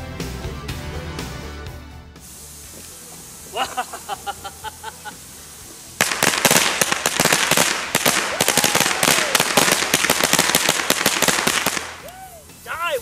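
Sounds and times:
firecrackers crackling: 0:02.1 - 0:13.0.

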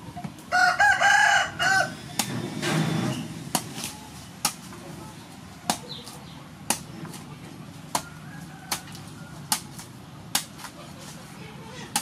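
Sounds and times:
cleaver chopping coconut husk: 0:02.1 - 0:02.4, 0:03.5 - 0:04.8, 0:05.6 - 0:11.2.

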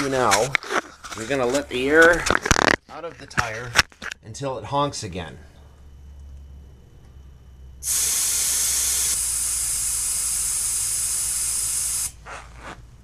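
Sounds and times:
air hissing from tire valve: 0:07.8 - 0:12.2.

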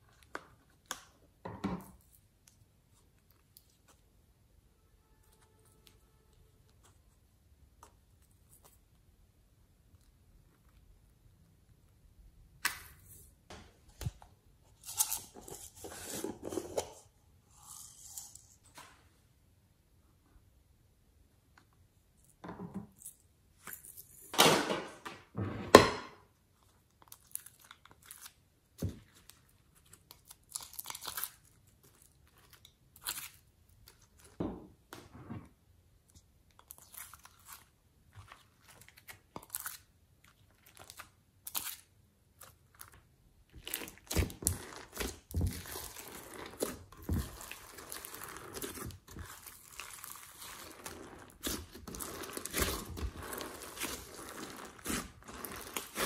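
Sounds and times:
wet squishing of slime: 0:00.0 - 0:04.4, 0:26.4 - 0:35.0, 0:35.9 - 0:56.0
slime peeling: 0:36.5 - 0:56.0.

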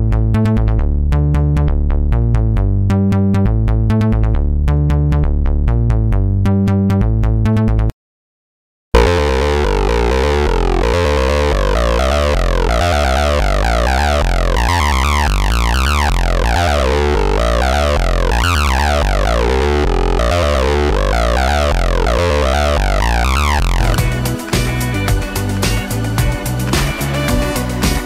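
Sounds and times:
acid synth bassline: 0:09.0 - 0:28.0.

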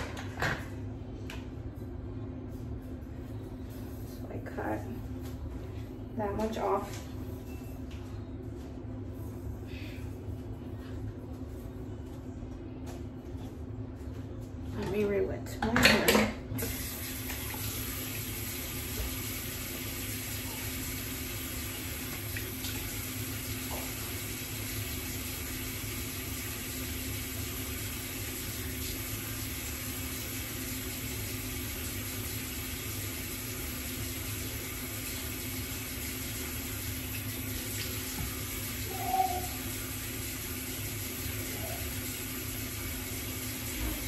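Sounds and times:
tap water running: 0:15.8 - 0:44.0.

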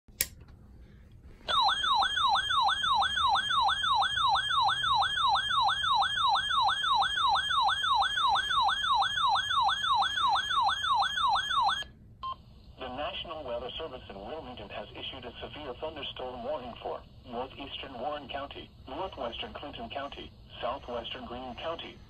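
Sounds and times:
weather radio alarm sweeping: 0:01.5 - 0:12.4.

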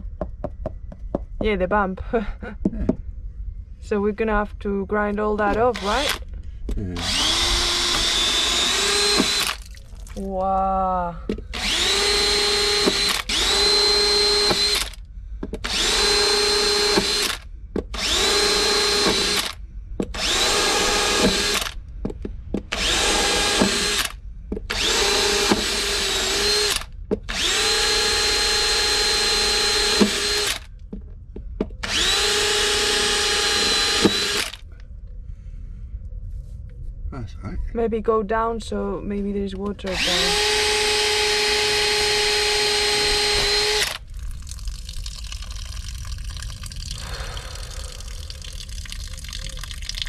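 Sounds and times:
cordless drill whining: 0:05.5 - 0:06.2, 0:07.0 - 0:09.6, 0:11.3 - 0:21.8, 0:22.7 - 0:30.7, 0:31.8 - 0:34.7, 0:39.9 - 0:44.0.

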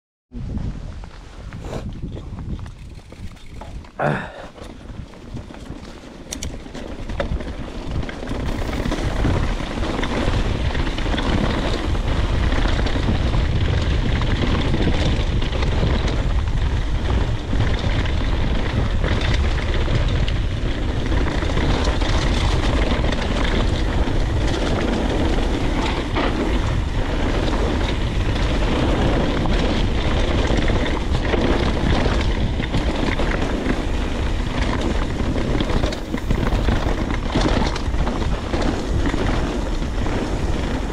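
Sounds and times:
wind rush on microphone: 0:00.3 - 0:40.9
tyre rumble: 0:00.4 - 0:40.9
bike rattle: 0:01.6 - 0:40.9.

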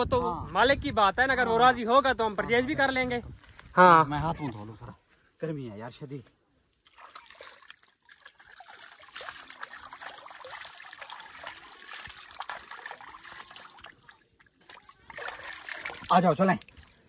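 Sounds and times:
water splashing onto face: 0:06.8 - 0:17.0.

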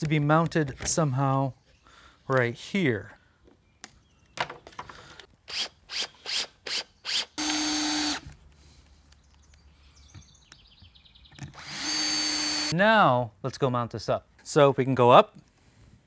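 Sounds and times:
drill driving screws: 0:05.5 - 0:08.3, 0:11.4 - 0:12.7
drill clicks: 0:05.5 - 0:08.4, 0:11.4 - 0:12.7.

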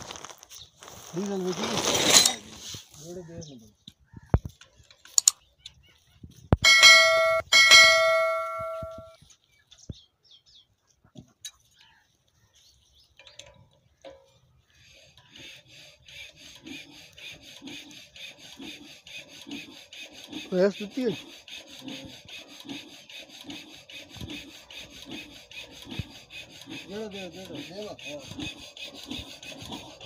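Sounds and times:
soft rhythmic rasping scrape: 0:04.4 - 0:09.6, 0:11.5 - 0:30.0
bell ringing: 0:06.6 - 0:09.1.

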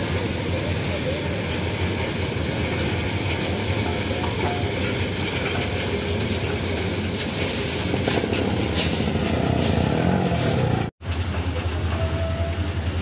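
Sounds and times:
train wagons rumbling on track: 0:00.0 - 0:13.0
metal clanks: 0:02.8 - 0:11.4.

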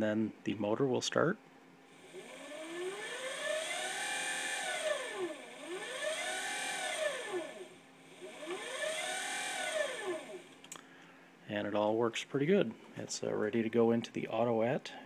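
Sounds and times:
electric motor whining: 0:02.0 - 0:10.6.

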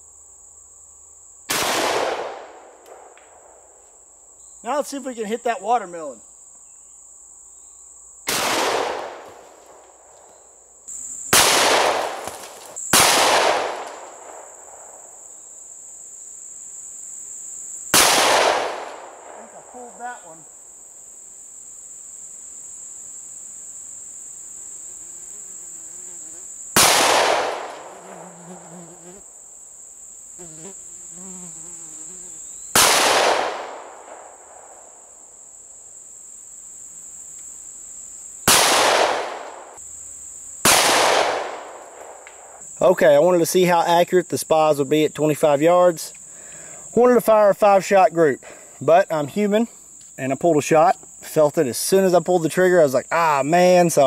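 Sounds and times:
insects buzzing: 0:00.0 - 0:54.0
shotgun shots: 0:01.5 - 0:03.2, 0:08.3 - 0:09.8, 0:11.3 - 0:15.0, 0:17.9 - 0:19.5, 0:26.8 - 0:27.9, 0:32.8 - 0:34.3, 0:38.5 - 0:39.7, 0:40.6 - 0:42.2.

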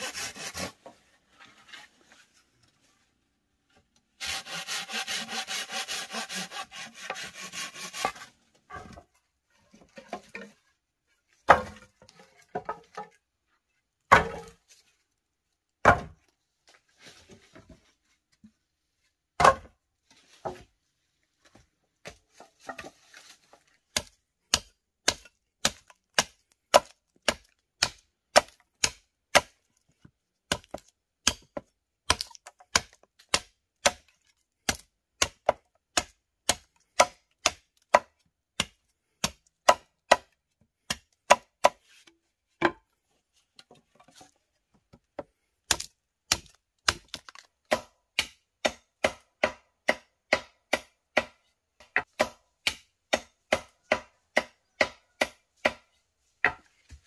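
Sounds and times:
blade chopping wood: 0:14.1 - 0:14.6, 0:23.9 - 0:29.6, 0:30.5 - 0:40.3, 0:45.7 - 0:57.0.

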